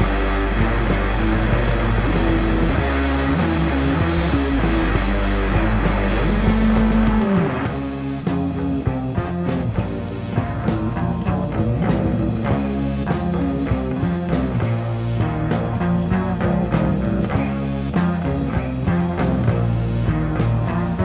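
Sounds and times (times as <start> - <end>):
drums driving beat: 0.0 - 21.0
electric guitar chord: 0.0 - 21.0.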